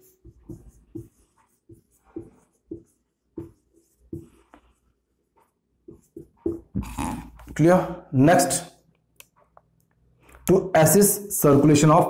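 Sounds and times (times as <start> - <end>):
marker writing on whiteboard: 0.0 - 7.6.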